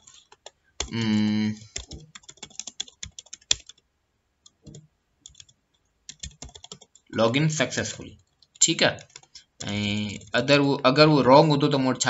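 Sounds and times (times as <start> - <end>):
typing on computer keyboard: 0.0 - 3.8, 4.4 - 7.1, 8.2 - 10.4
person humming: 0.9 - 1.8.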